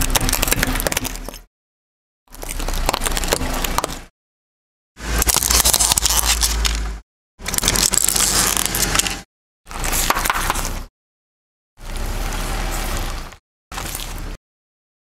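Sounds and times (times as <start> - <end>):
tyre crunching brittle objects: 0.0 - 1.5, 2.3 - 4.1, 5.0 - 10.9, 11.8 - 14.4.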